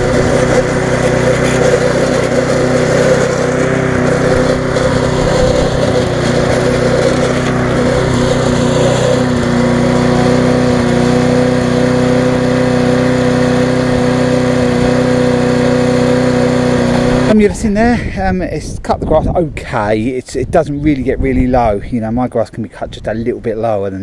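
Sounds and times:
lawn mower engine running: 0.0s - 18.2s.

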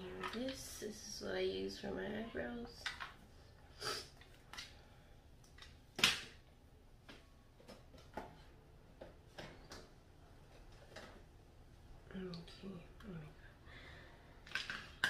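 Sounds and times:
small objects clicking and knocking: 14.4s - 15.0s.

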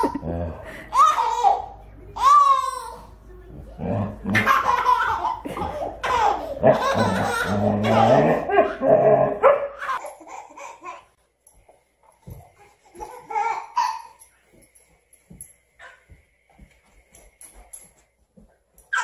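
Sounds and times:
baby belly-laughing: 4.3s - 11.1s.

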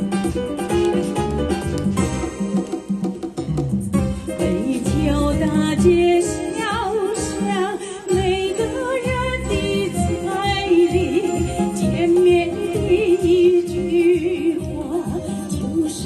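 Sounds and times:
amplified keyboard music: 0.0s - 16.0s
woman singing with vibrato: 4.4s - 16.0s.

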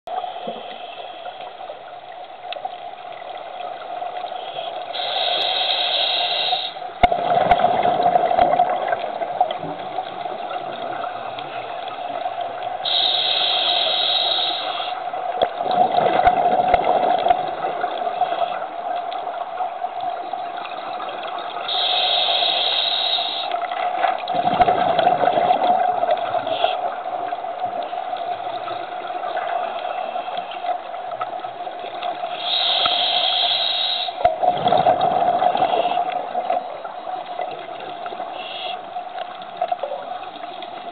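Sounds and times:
scuba regulator inhale hiss: 4.4s - 6.8s, 12.8s - 15.1s, 21.7s - 23.6s, 32.2s - 34.3s, 38.3s - 38.9s
gurgling exhaust bubbles: 7.0s - 11.2s, 15.4s - 18.1s, 24.2s - 26.5s, 34.3s - 36.9s.

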